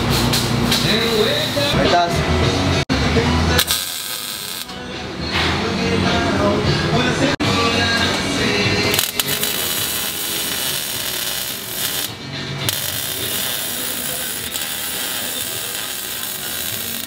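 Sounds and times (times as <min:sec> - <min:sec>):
welding arc crackling: 0:03.6 - 0:04.8, 0:08.9 - 0:17.0.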